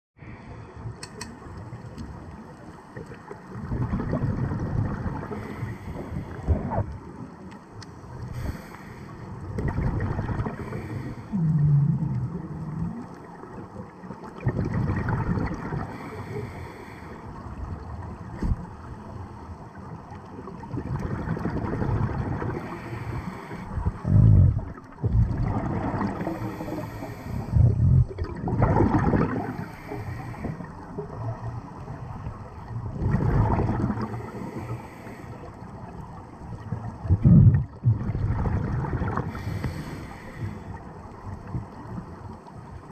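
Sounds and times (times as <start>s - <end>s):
gurgling exhaled bubbles: 3.0s - 7.1s, 9.4s - 16.6s, 20.0s - 42.9s
regulator breathing underwater: 5.2s - 6.9s, 8.2s - 9.4s, 10.4s - 12.1s, 15.8s - 17.3s, 22.4s - 24.6s, 26.1s - 28.1s, 29.3s - 30.8s, 33.8s - 35.7s, 39.1s - 40.9s.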